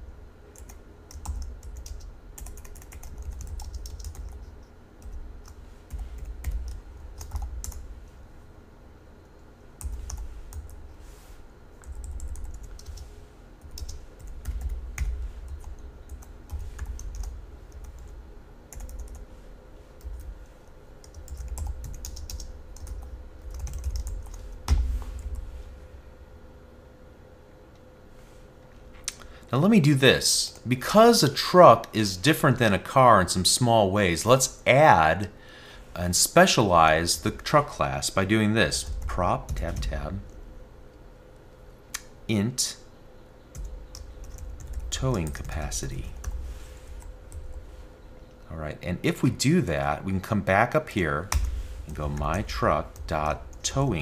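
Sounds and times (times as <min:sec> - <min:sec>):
typing on computer keyboard: 0:00.5 - 0:07.8, 0:13.7 - 0:18.1, 0:18.7 - 0:19.2, 0:21.0 - 0:24.8.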